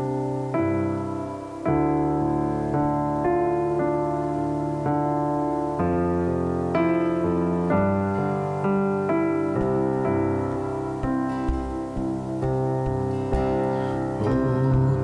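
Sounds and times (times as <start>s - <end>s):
electric piano chords: 0.0s - 15.0s.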